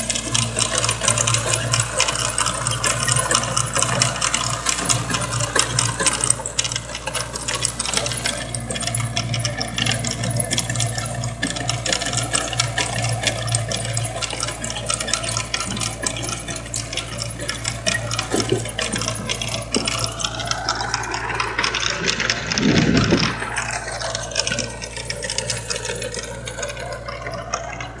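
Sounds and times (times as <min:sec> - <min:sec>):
tiller blades rattling: 0:00.0 - 0:28.0
tractor diesel engine running: 0:00.0 - 0:28.0
rising and falling whine: 0:12.3 - 0:28.0.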